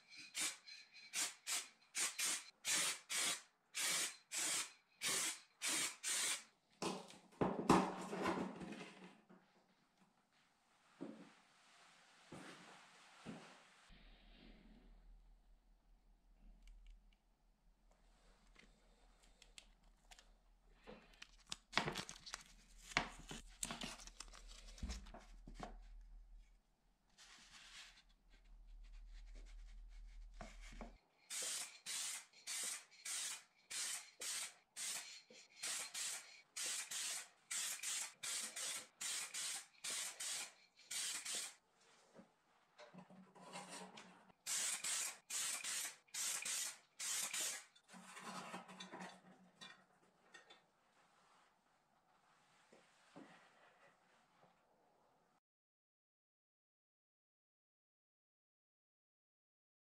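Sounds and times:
aerosol spray can hissing: 0.4 - 6.4, 31.3 - 41.6
rustling and clicks of handling: 17.9 - 26.1.

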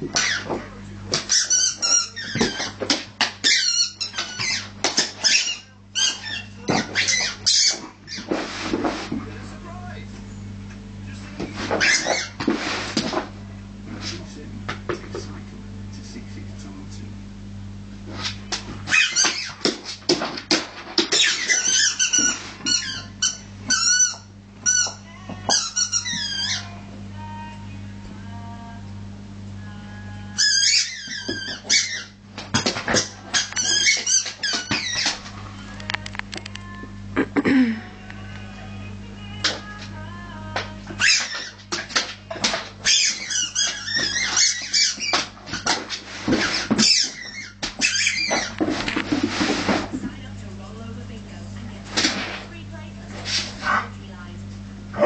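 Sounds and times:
squeaky rubber ball squeaking: 0.1 - 0.5, 1.2 - 8.3, 11.8 - 12.4, 18.9 - 19.7, 21.1 - 26.7, 30.4 - 32.2, 33.0 - 35.2, 40.9 - 41.8, 42.8 - 45.8, 46.4 - 48.6.

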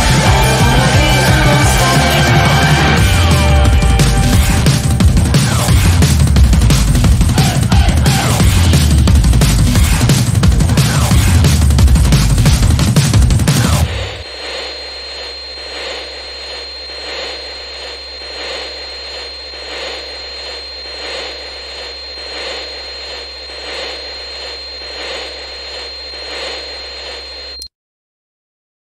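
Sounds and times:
loud music: 0.0 - 14.2
high-pitched whine: 0.0 - 27.7
droning hum: 11.8 - 27.6.

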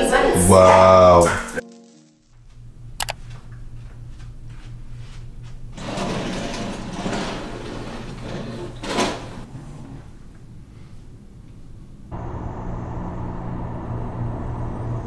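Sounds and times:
steady low hum: 2.4 - 15.0
curtains sliding along a rail: 5.8 - 10.1.

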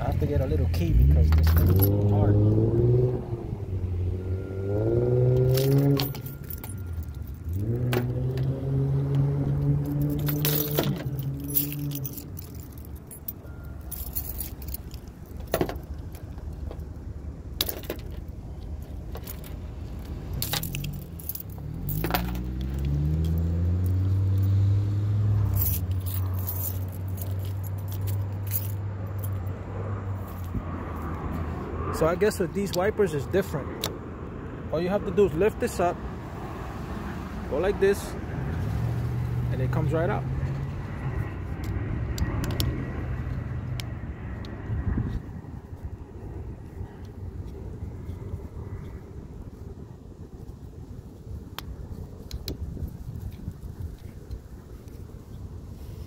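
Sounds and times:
vehicle engine humming: 0.0 - 56.0
keys jangling and clicking: 0.8 - 2.2, 5.3 - 8.5, 9.6 - 17.0, 17.6 - 24.6, 25.5 - 29.6.

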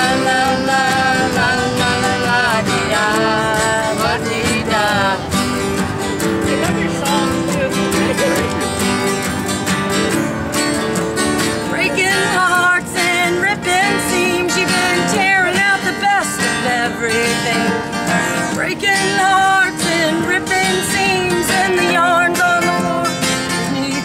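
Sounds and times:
woman singing with vibrato: 0.0 - 5.8, 11.7 - 24.0
acoustic guitar strumming: 0.0 - 24.0.

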